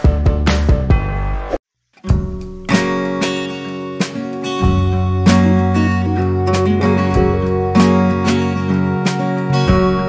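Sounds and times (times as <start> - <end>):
music with strong bass and beat: 0.0 - 10.0
strummed guitar music: 2.0 - 10.0.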